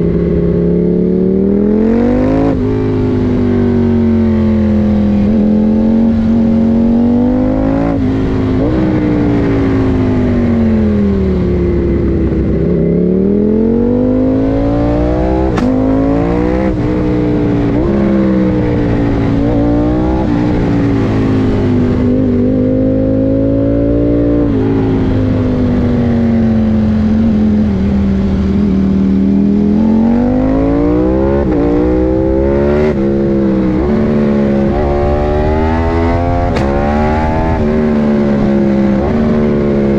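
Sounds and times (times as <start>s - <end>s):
motorcycle engine accelerating: 0.0s - 39.9s
wind rush: 24.4s - 39.9s.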